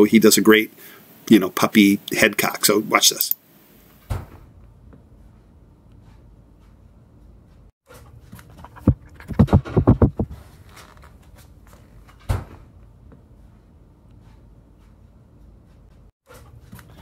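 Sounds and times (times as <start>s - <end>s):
knocks on phone microphone: 8.9s - 10.3s.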